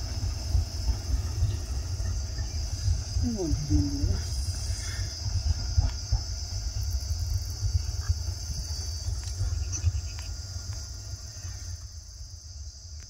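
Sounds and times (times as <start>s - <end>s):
low fluctuating rumble: 0.0s - 12.8s
high-pitched insect chirring: 1.9s - 4.9s, 8.8s - 10.8s.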